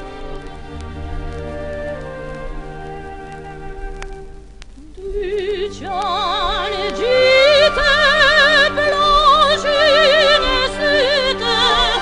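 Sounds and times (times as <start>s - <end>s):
sustained instrumental accompaniment: 0.0s - 12.0s
soprano singing with vibrato: 4.8s - 12.0s.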